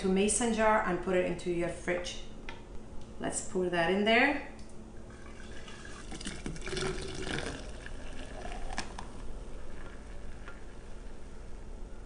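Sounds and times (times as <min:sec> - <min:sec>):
milk pouring into a container: 0:05.1 - 0:11.2.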